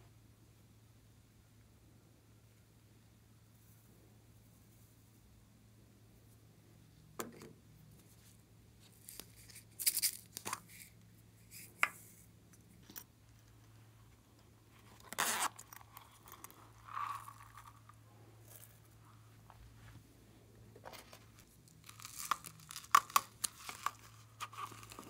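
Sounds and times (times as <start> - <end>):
crinkly rustles: 20.8 - 25.0.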